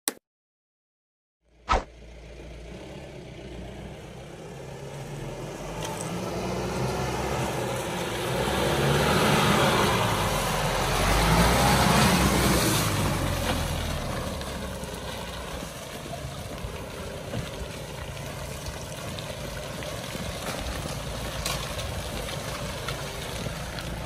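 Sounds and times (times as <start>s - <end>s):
diesel engine pulling through mud: 1.5s - 24.0s
tyres splashing through mud: 4.9s - 24.0s.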